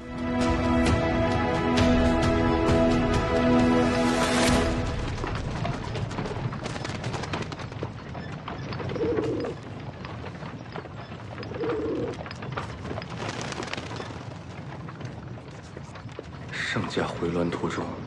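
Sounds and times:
pigeon cooing: 0:08.8 - 0:09.6, 0:11.4 - 0:12.2.

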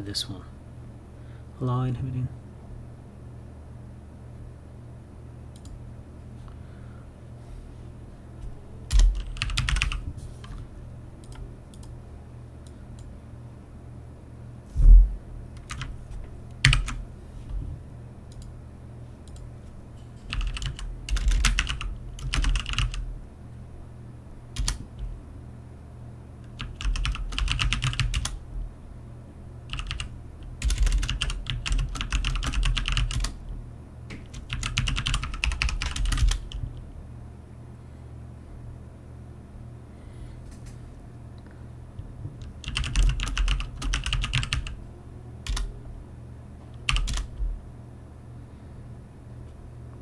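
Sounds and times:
keyboard typing: 0:08.9 - 0:10.6, 0:11.2 - 0:11.9, 0:15.6 - 0:16.0, 0:16.6 - 0:17.0, 0:20.2 - 0:23.0, 0:24.6 - 0:25.1, 0:26.5 - 0:28.4, 0:29.7 - 0:33.4, 0:34.2 - 0:36.6, 0:42.4 - 0:44.8, 0:45.4 - 0:45.7, 0:46.8 - 0:47.4.

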